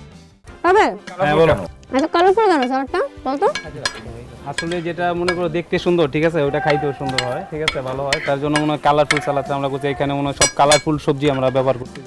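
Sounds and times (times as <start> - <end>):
metal tongs clicking on grill: 2.0 - 2.9, 3.5 - 5.9, 6.6 - 9.7, 10.3 - 11.7
meat sizzling on a grill: 3.4 - 11.8.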